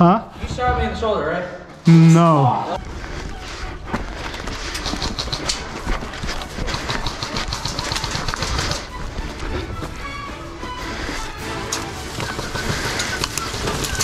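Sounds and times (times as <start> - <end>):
footsteps through dry grass: 2.8 - 14.0.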